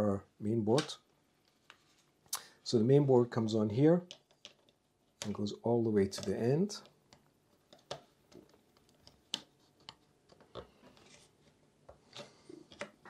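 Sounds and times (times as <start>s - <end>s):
plastic parts clicking and scraping: 4.0s - 5.4s, 6.0s - 13.0s.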